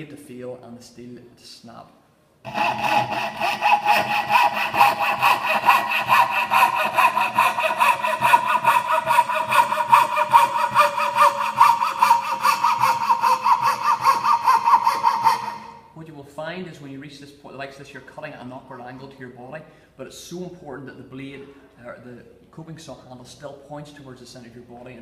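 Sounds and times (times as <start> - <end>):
coping saw cutting wood: 2.5 - 15.8.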